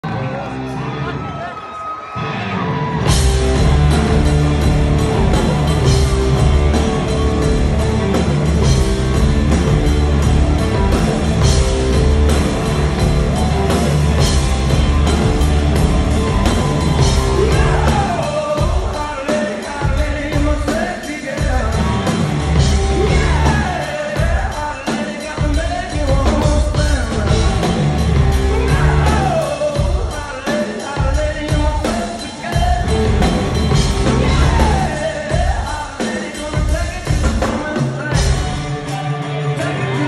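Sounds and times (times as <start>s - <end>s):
bass guitar: 0.0s - 1.4s, 2.2s - 19.0s, 21.4s - 24.5s, 25.5s - 30.2s, 32.5s - 35.7s, 36.7s - 40.0s
electric guitar: 0.0s - 20.8s, 21.4s - 30.2s, 31.8s - 36.2s, 36.8s - 40.0s
drums with cymbals: 3.0s - 40.0s
person singing: 15.1s - 40.0s.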